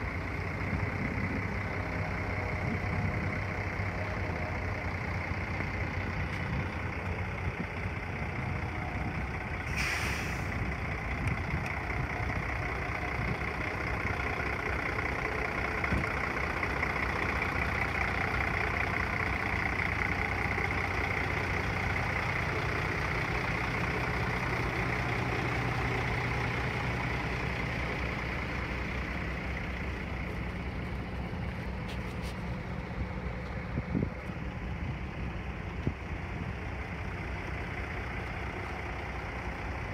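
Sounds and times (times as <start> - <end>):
diesel engine idling: 0.0 - 39.9
brief hiss: 9.7 - 10.6.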